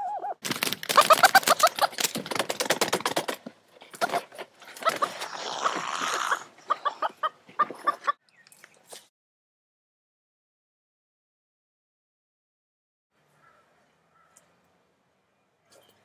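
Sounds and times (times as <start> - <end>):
chickens clucking: 0.0 - 2.5, 3.8 - 8.2.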